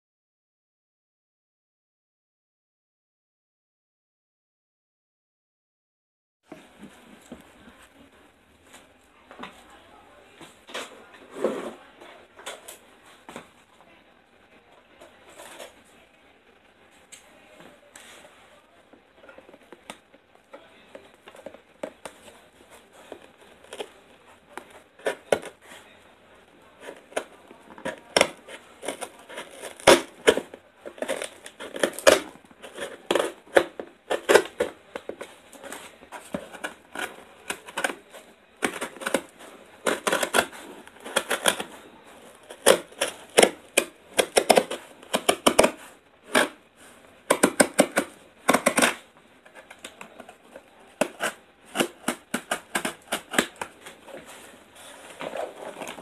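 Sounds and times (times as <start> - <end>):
scissors cutting packing tape: 26.8 - 35.1, 36.3 - 41.7, 42.5 - 46.6, 47.3 - 49.0, 50.9 - 53.9.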